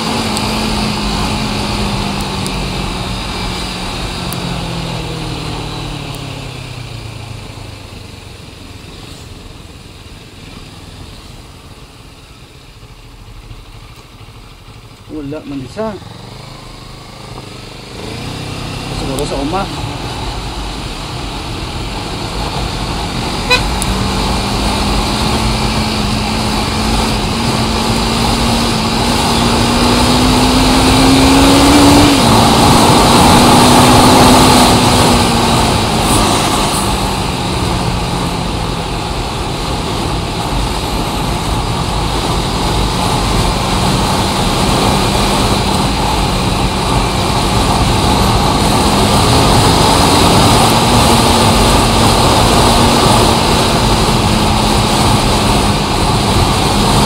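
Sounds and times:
vehicle engine and road noise: 0:00.0 - 0:57.0.

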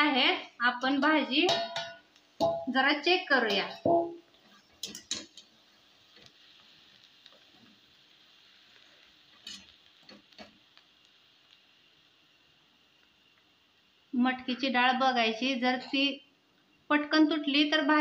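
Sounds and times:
faint sizzle of cooking: 0:00.0 - 0:18.0
spatula tapping and scraping pan: 0:00.8 - 0:02.7, 0:03.4 - 0:04.2, 0:04.8 - 0:05.5.

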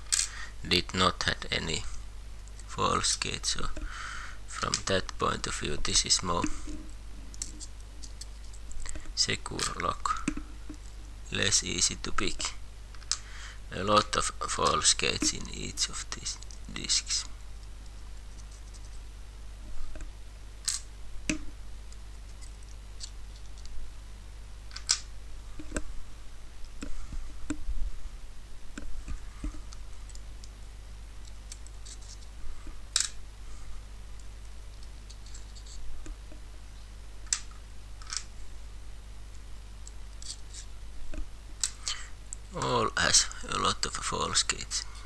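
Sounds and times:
low steady hum: 0:00.0 - 0:45.0
small metal clicks: 0:37.2 - 0:38.3.

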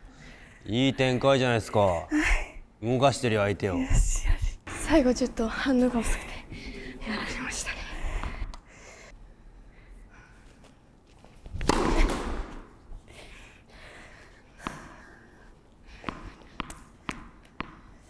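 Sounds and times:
tennis ball bouncing on hard court: 0:11.6 - 0:12.8, 0:16.0 - 0:18.0.

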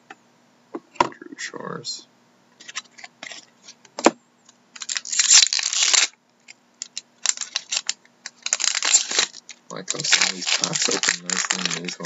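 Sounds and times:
foil pack tearing and crinkling: 0:04.8 - 0:06.2, 0:06.8 - 0:12.0.

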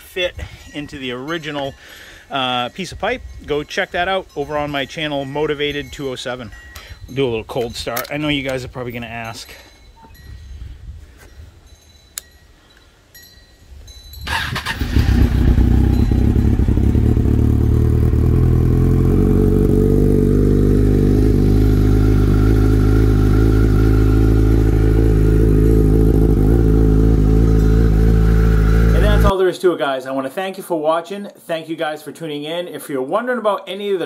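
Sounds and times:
motorcycle engine cranking: 0:14.3 - 0:29.3
motorcycle engine idling: 0:14.3 - 0:29.3.

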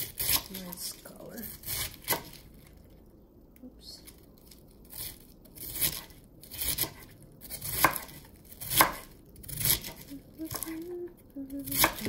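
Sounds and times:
knife slicing cabbage on board: 0:01.6 - 0:02.4, 0:04.9 - 0:10.7, 0:11.7 - 0:12.0.

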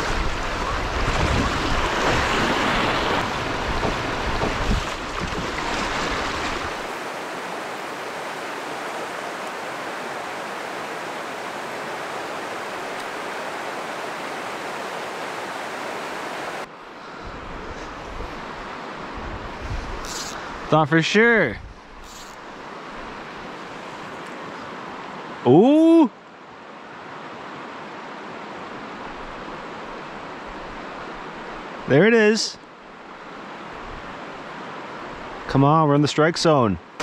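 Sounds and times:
wind rumble on microphone: 0:00.0 - 0:06.9, 0:17.2 - 0:20.7.

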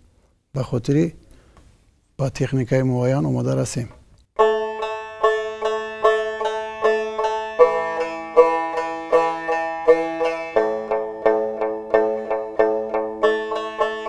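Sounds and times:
plucked lute notes: 0:04.4 - 0:14.0.

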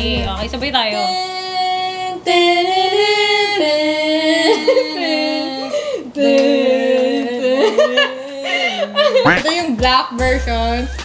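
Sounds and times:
women singing a cappella: 0:00.0 - 0:11.0.

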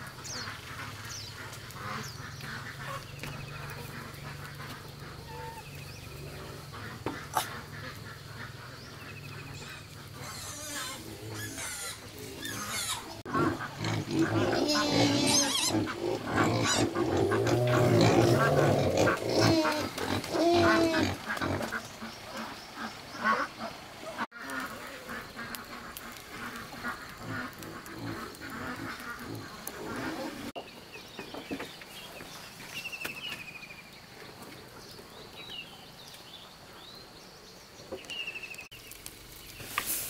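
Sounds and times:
animal grunts and calls: 0:09.5 - 0:21.8.

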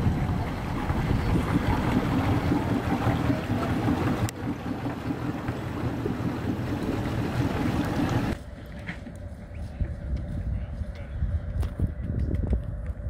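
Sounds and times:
boat engine rumbling: 0:00.0 - 0:08.6
wind buffeting microphone: 0:00.0 - 0:13.0.

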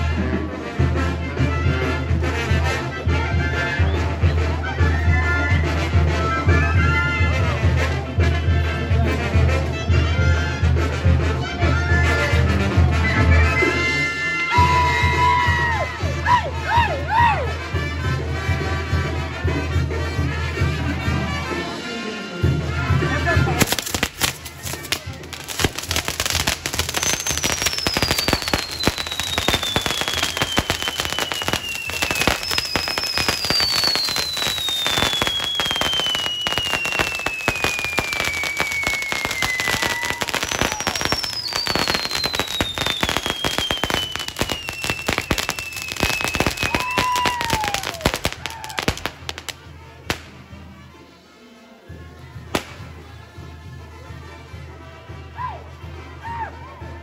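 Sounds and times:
fireworks crackling and popping: 0:23.4 - 0:50.6, 0:52.5 - 0:53.0
falling firework whistles: 0:23.6 - 0:49.1.

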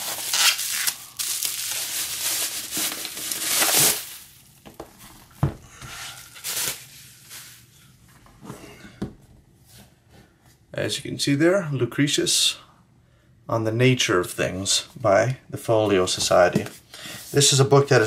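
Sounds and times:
bubble wrap rustling and crinkling: 0:00.0 - 0:07.8.

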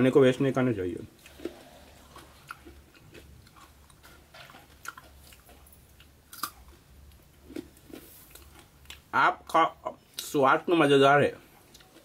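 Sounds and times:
person chewing brittle: 0:01.2 - 0:09.1, 0:11.6 - 0:12.0.

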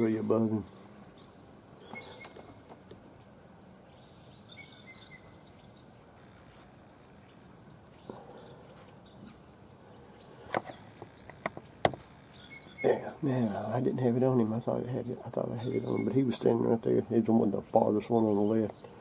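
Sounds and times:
low steady hiss: 0:00.0 - 0:19.0
faint chirps: 0:00.1 - 0:02.6.

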